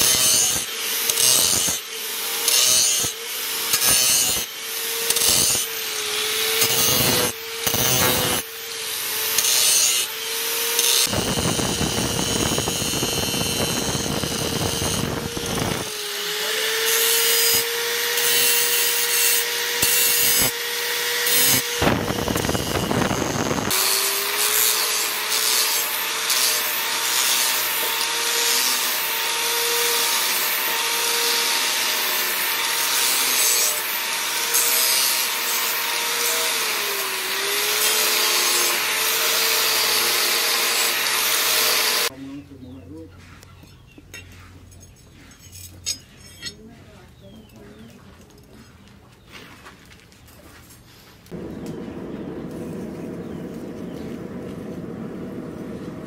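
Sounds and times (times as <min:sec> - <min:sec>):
angle grinder grinding metal: 0:00.0 - 0:42.1.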